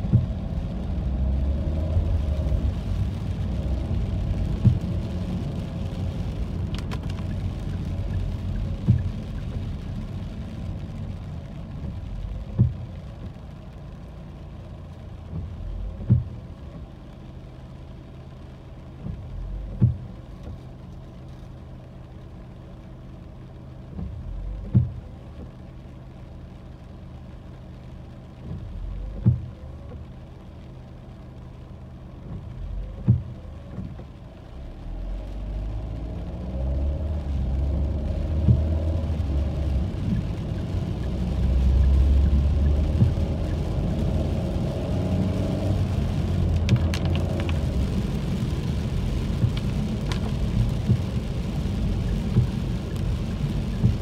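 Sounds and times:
windshield wiper knock: 0.0s - 0.4s, 4.5s - 4.9s, 8.8s - 9.6s, 11.8s - 12.9s, 15.3s - 16.4s, 19.0s - 20.6s, 23.9s - 25.6s, 28.4s - 30.1s, 32.2s - 34.1s, 38.4s - 38.8s, 42.8s - 43.3s, 49.3s - 51.2s, 52.1s - 52.8s, 53.6s - 54.0s
road and engine rumble: 0.0s - 54.0s.

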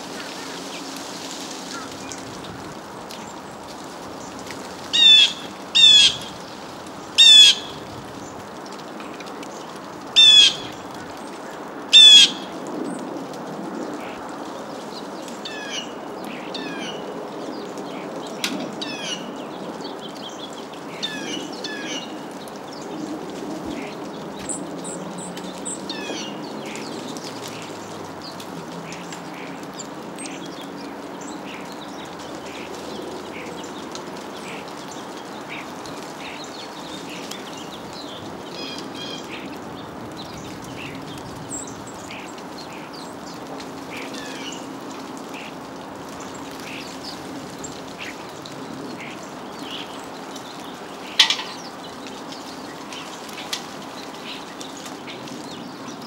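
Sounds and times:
birds rattling calls: 0.0s - 12.9s, 13.8s - 56.0s
bird chirps: 51.2s - 51.8s.

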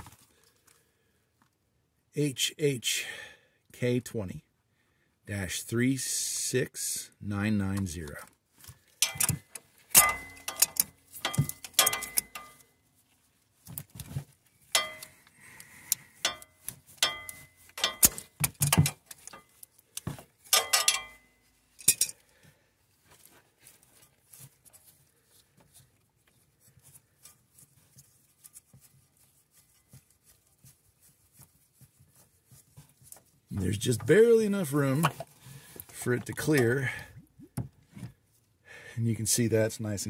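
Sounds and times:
hand tools clinking on metal: 9.0s - 12.7s, 14.7s - 19.7s, 20.4s - 22.2s.

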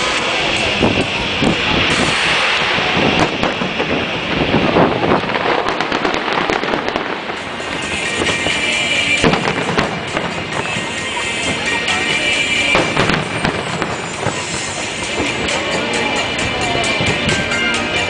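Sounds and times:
music: 0.0s - 3.6s, 6.2s - 18.0s
firework shells bursting: 0.1s - 17.3s
crackling firework pops: 1.4s - 8.5s, 9.2s - 10.8s.

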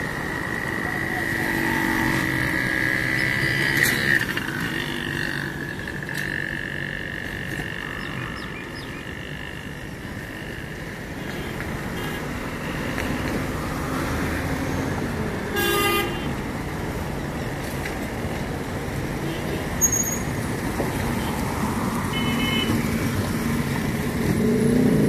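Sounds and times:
road traffic passing: 0.0s - 25.0s
vehicle horn toot: 15.5s - 16.3s, 22.1s - 22.8s.

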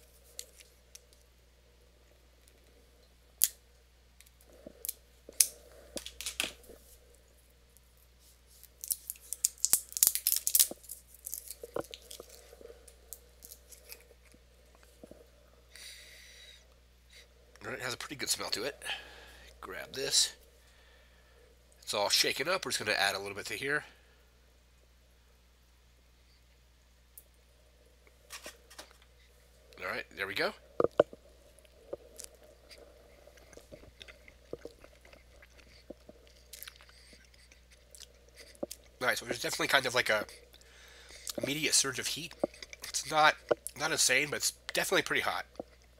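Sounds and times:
chewing with small crunches: 0.0s - 3.6s, 4.2s - 17.7s, 30.7s - 45.9s
person biting crisp snack: 8.6s - 14.4s, 32.0s - 39.0s.

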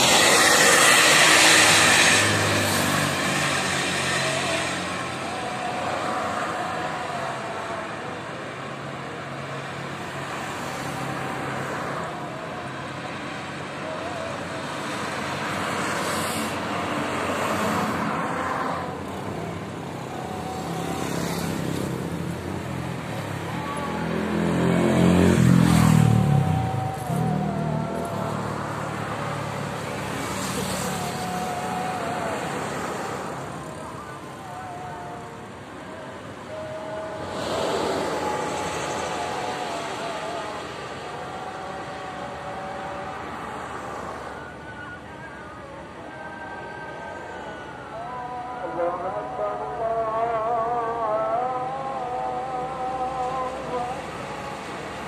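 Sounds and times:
heavy vehicle passing: 0.0s - 44.5s
cars and trucks passing: 0.0s - 55.0s.

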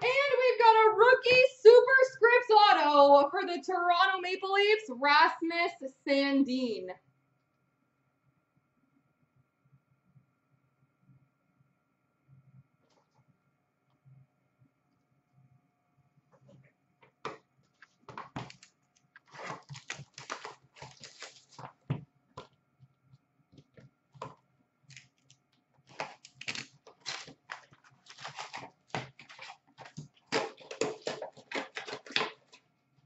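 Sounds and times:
foil packs rustling and crinkling: 17.8s - 21.9s, 25.9s - 32.6s
box set on glass counter: 27.0s - 32.7s.

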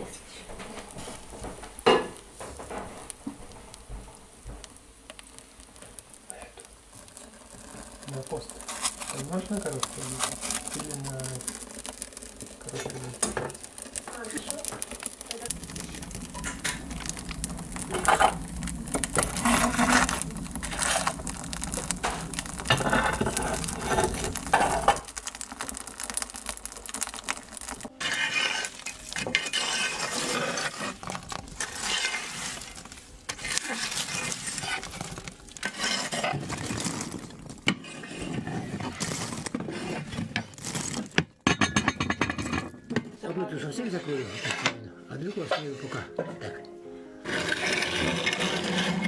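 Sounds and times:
tools and cookware clinking: 1.8s - 3.0s, 12.7s - 18.4s, 27.8s - 32.7s, 41.1s - 43.1s, 44.1s - 44.8s.

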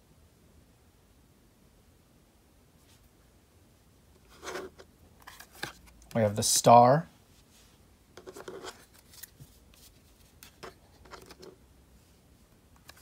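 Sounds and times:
cards scraping and clicking: 4.2s - 6.1s, 8.2s - 11.6s, 12.8s - 13.0s.

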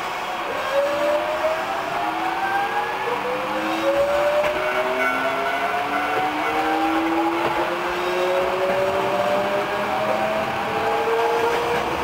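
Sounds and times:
train running rumble: 3.6s - 12.0s.

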